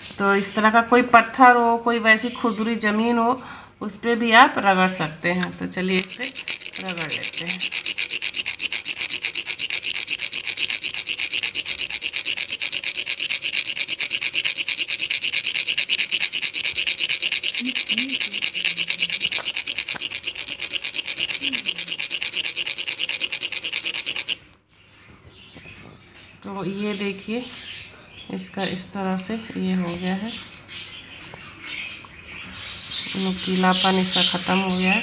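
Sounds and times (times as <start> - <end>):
seed scraping on grinding stone: 5.4 - 24.4.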